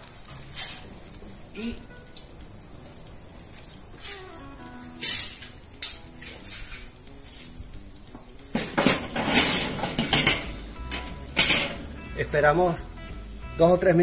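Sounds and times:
metal grate clanking on grill: 0:00.3 - 0:01.2, 0:05.0 - 0:07.0, 0:08.4 - 0:12.0
metallic rattle: 0:08.5 - 0:11.9.

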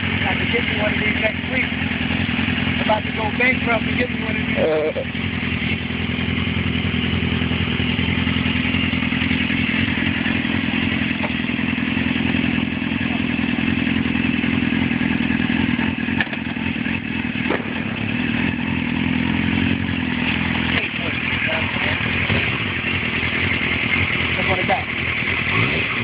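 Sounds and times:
motorcycle engine idling: 0:00.0 - 0:26.0.

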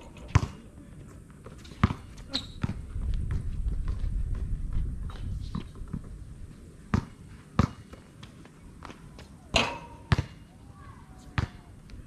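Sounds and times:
basketball bouncing on concrete: 0:00.2 - 0:00.6, 0:01.8 - 0:04.8, 0:06.9 - 0:07.9, 0:09.6 - 0:10.4, 0:11.4 - 0:11.6.

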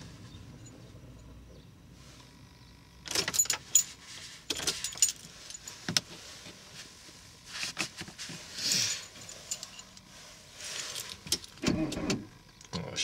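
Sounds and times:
keys jangling: 0:03.1 - 0:05.8, 0:08.9 - 0:10.0.

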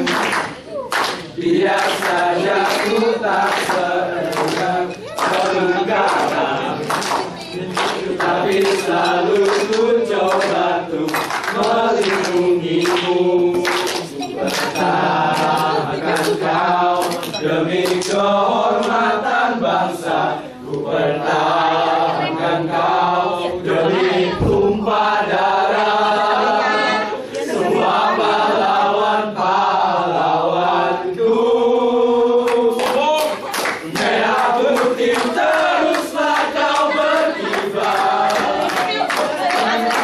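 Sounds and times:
sharp rhythmic hits: 0:00.0 - 0:18.9
men singing in chorus: 0:01.3 - 0:40.0.

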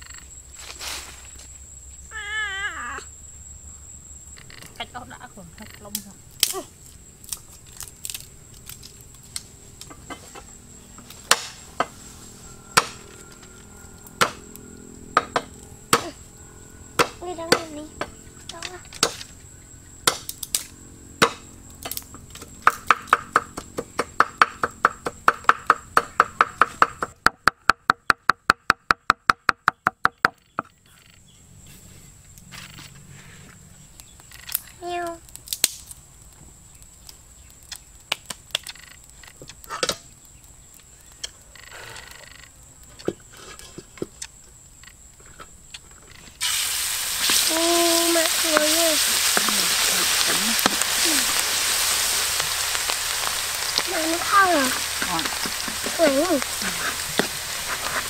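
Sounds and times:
food sizzling in hot oil: 0:46.4 - 0:58.0.

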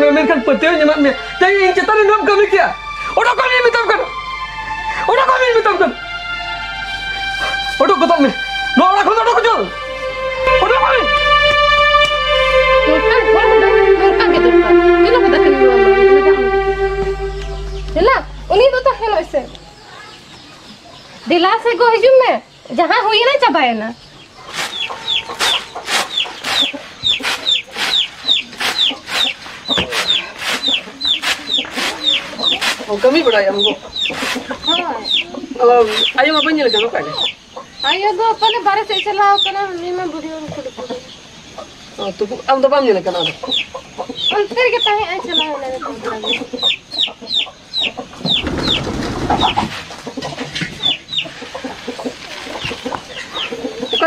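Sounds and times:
chickens clucking: 0:01.0 - 0:21.4, 0:24.0 - 0:54.0
rustling noise: 0:24.4 - 0:33.3, 0:48.2 - 0:50.4.

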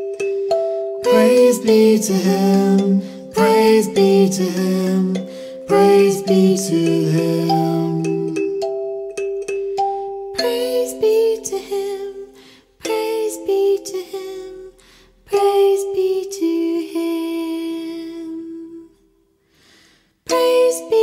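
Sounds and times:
music box chiming notes: 0:00.0 - 0:12.1
woman singing wordless melody: 0:01.0 - 0:08.6, 0:10.4 - 0:19.0, 0:20.3 - 0:21.0.

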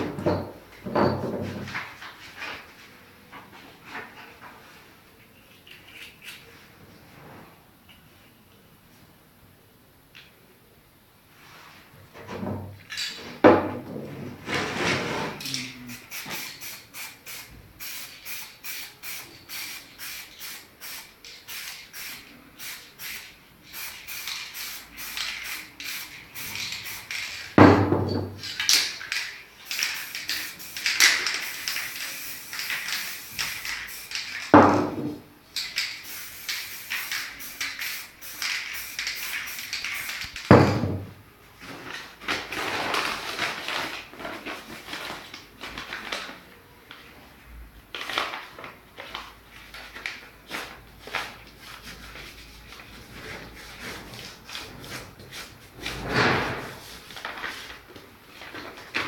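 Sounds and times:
spray paint can hissing: 0:15.5 - 0:27.6, 0:28.5 - 0:34.6, 0:35.6 - 0:40.5.

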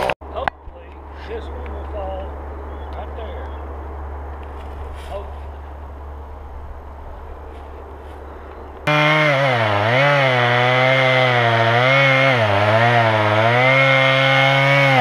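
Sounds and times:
low steady hum: 0:00.2 - 0:08.9
chainsaw cutting wood: 0:08.8 - 0:15.0.

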